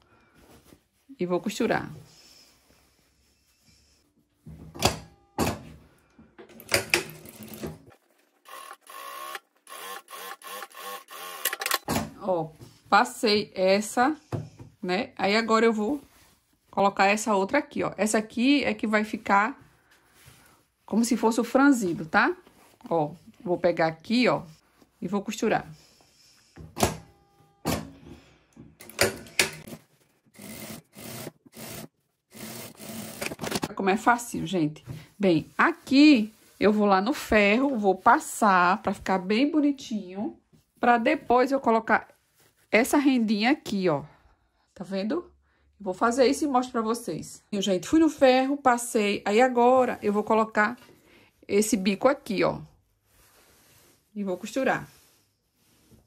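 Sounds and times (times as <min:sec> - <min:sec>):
sewing machine stitching: 0:06.6 - 0:11.9, 0:28.8 - 0:33.7.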